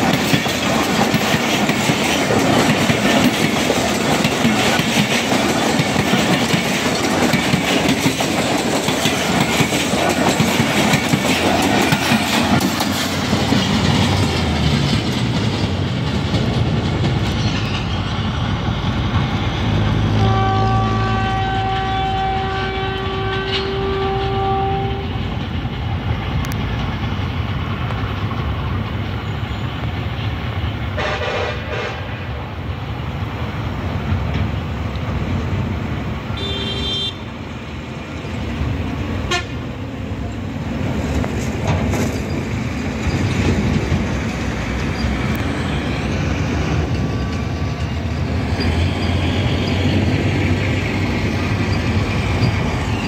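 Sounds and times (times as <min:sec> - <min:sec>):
train low rumble: 0:00.0 - 0:53.0
train horn toots: 0:20.1 - 0:25.3, 0:31.0 - 0:32.4, 0:36.4 - 0:37.3, 0:39.3 - 0:39.6.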